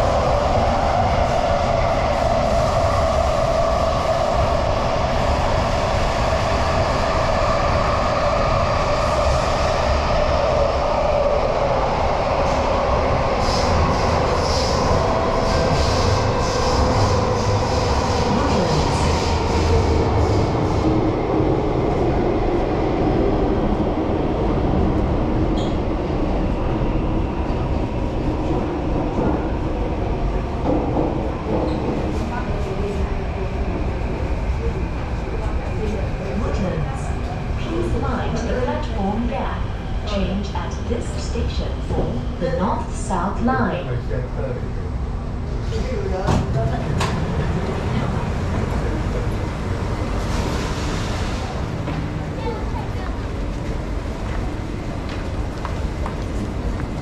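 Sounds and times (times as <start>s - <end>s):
rumble of train wheels on rail: 0.0s - 57.0s.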